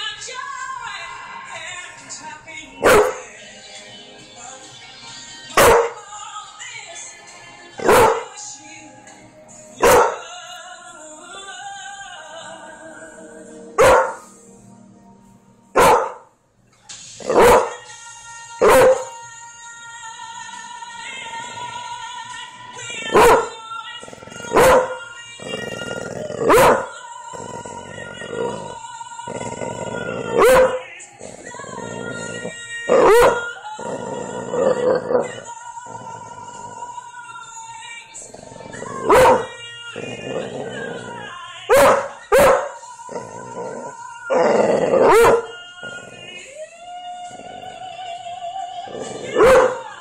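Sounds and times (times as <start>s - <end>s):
song playing: 0.0s - 50.0s
dog barking: 2.8s - 3.2s, 5.6s - 6.0s, 7.8s - 8.3s, 9.8s - 10.2s, 13.8s - 14.3s, 15.8s - 16.3s, 17.3s - 17.8s, 18.6s - 19.1s, 23.1s - 23.6s, 24.5s - 25.0s, 26.5s - 27.0s, 30.4s - 30.9s, 33.0s - 33.5s, 39.1s - 39.5s, 41.7s - 42.8s, 45.1s - 45.5s, 49.4s - 49.9s.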